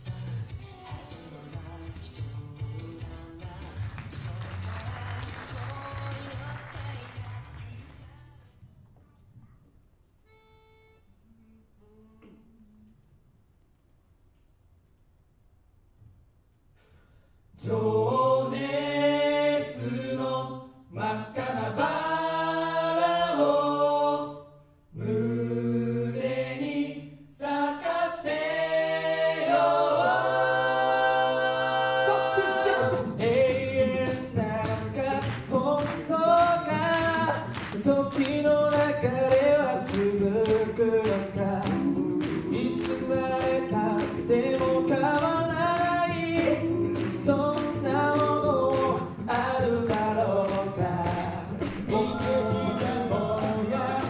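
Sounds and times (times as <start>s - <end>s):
group singing in harmony: 17.6s - 54.0s
vocal percussion beat: 29.2s - 54.0s.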